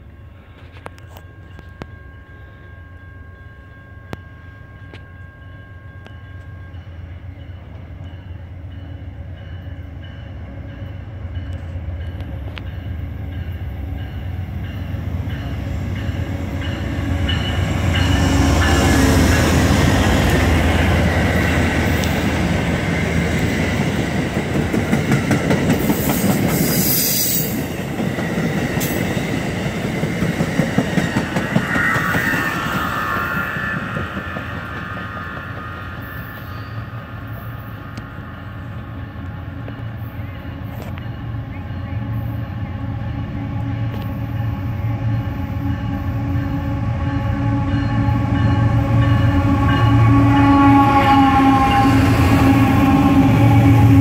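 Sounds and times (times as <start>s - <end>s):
clickety-clack of train wheels: 10.8s - 41.2s.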